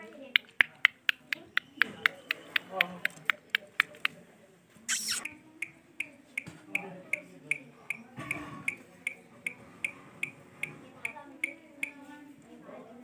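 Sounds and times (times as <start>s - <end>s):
sharp ticks: 0.3s - 4.1s, 8.7s - 12.0s.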